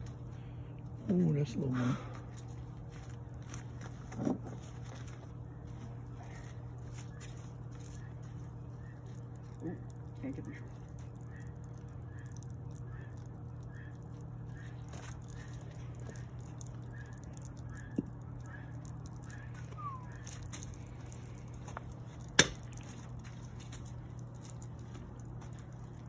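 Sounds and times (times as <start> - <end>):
furnace burner hum: 0.0 - 26.0.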